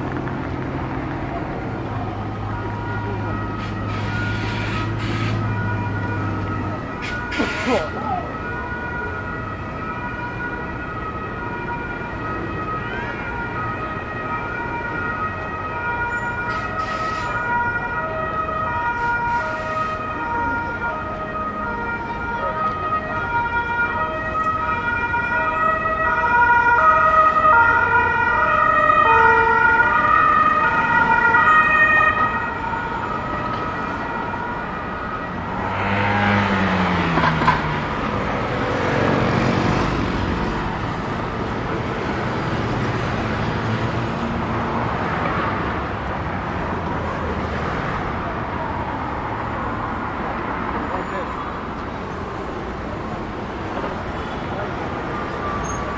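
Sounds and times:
street traffic: 0.0s - 55.9s
two-tone siren: 1.9s - 42.2s, 53.8s - 55.9s
large vehicle passing: 17.4s - 55.9s.

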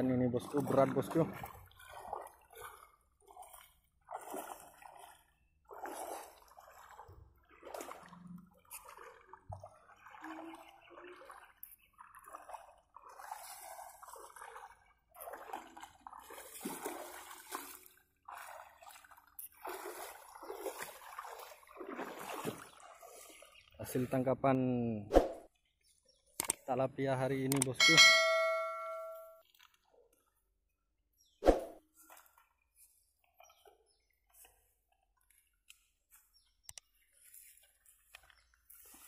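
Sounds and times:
footsteps wading through water: 0.0s - 24.3s, 31.2s - 39.0s.

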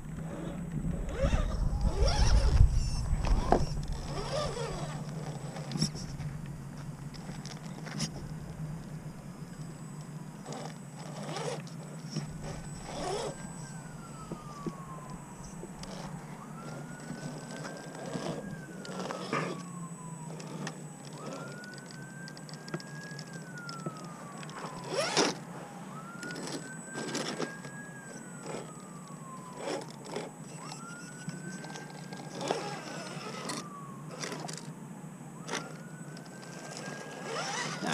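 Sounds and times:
faint siren wailing: 0.0s - 37.9s
toy crawler knocks and scrapes: 26.2s - 28.8s, 29.4s - 34.7s, 35.5s - 37.8s.

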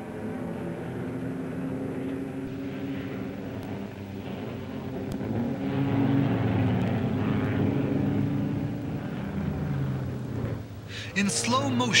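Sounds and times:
race car engines passing: 0.0s - 12.0s.

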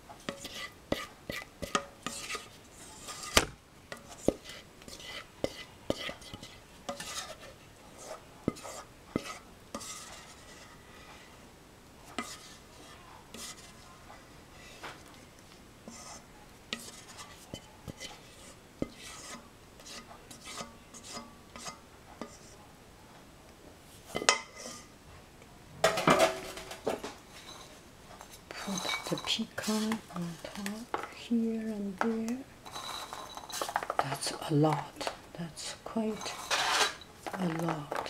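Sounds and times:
utensils scraping cookware: 0.2s - 10.8s, 12.1s - 13.8s, 15.9s - 22.6s, 25.9s - 30.5s, 32.6s - 38.0s.

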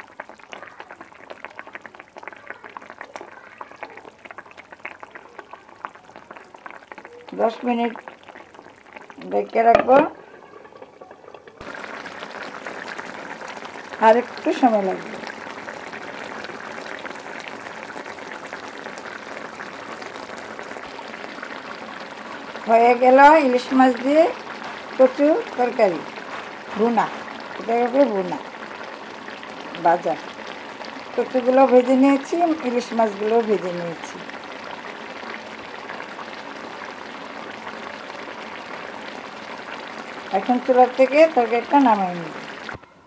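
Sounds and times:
curry bubbling in a pan: 0.0s - 42.9s.

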